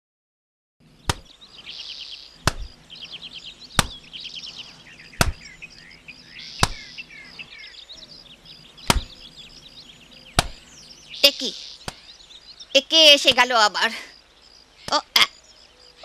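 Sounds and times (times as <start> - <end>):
birds chirping: 0.8 - 16.0
wet laundry slapping on wood: 1.1 - 1.3, 2.4 - 2.8, 3.8 - 4.0, 5.2 - 5.4, 6.6 - 6.9, 8.8 - 9.1, 10.4 - 10.6.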